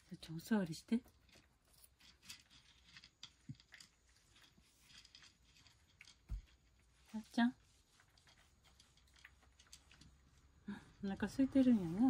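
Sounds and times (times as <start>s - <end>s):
cat crunching food: 1.2s - 7.0s, 7.7s - 10.6s.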